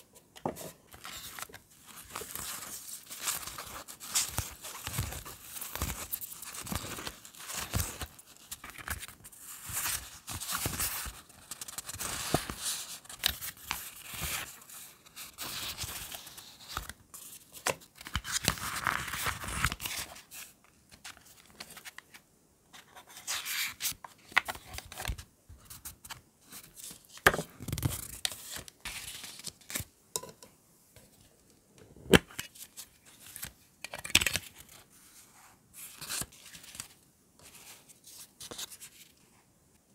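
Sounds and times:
paper rustling and crinkling: 0.0s - 29.9s
cards shuffled and flipped: 0.4s - 14.5s, 15.4s - 22.1s, 32.1s - 34.8s, 35.9s - 39.1s.

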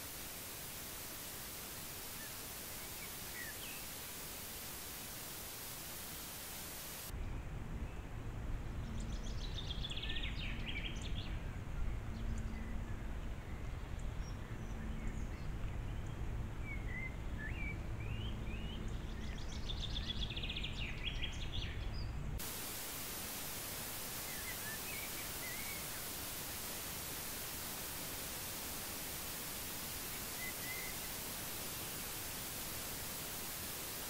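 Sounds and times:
bird chirps: 22.6s - 34.0s
songbird trilling: 30.0s - 31.2s.

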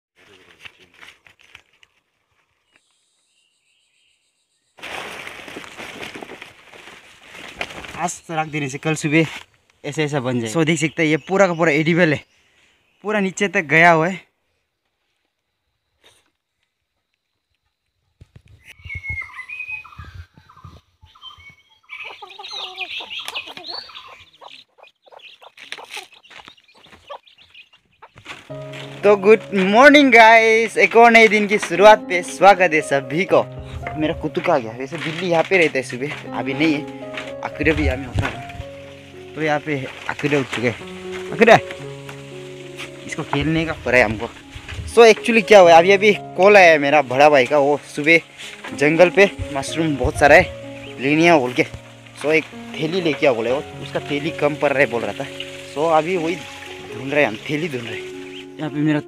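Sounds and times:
rustling and handling noises: 0.2s - 2.9s, 4.8s - 9.8s, 33.9s - 46.6s
dense rustling: 4.8s - 10.8s, 28.1s - 58.9s
birds chirping: 7.2s - 14.8s, 18.6s - 59.0s
low thumps: 36.9s - 39.1s, 49.3s - 51.0s.

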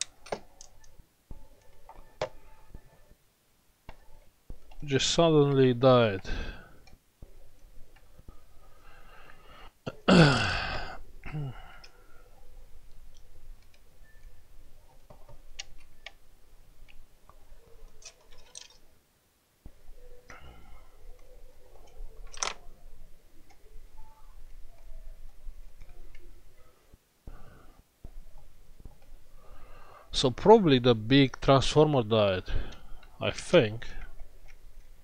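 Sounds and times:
small metal clicks and clinks: 18.0s - 18.8s.

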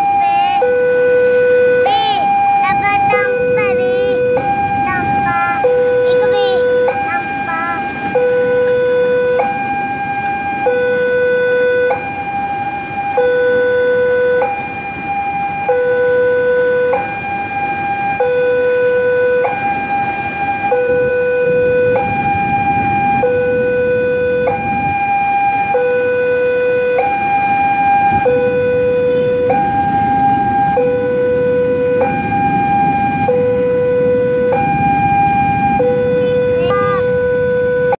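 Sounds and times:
train rumbling past: 0.0s - 10.6s, 27.5s - 37.9s
two-tone crossing alarm: 0.0s - 37.9s.

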